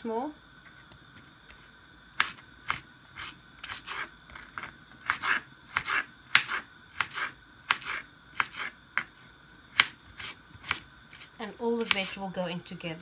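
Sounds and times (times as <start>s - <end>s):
knife chopping on cutting board: 2.2s - 4.1s, 5.0s - 9.1s, 9.7s - 12.2s.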